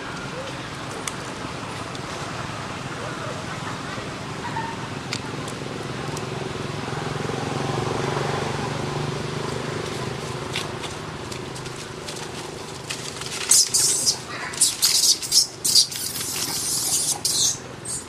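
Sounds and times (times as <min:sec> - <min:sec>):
vehicle engine hum: 0:00.0 - 0:18.0
dry leaves rustling: 0:09.7 - 0:18.0.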